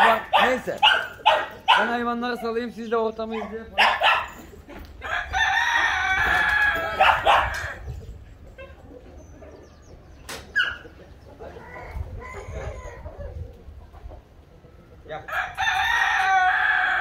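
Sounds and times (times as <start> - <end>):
hens clucking: 0.0 - 15.3
rooster crowing: 5.0 - 7.8, 15.3 - 17.0.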